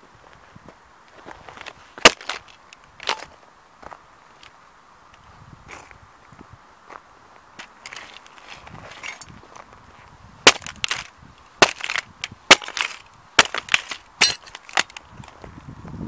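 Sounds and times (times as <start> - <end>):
metal toy car cracking and crunching: 2.0 - 3.3, 8.9 - 9.4, 10.4 - 15.3
sneakers stomping on gritty ground: 10.4 - 15.5.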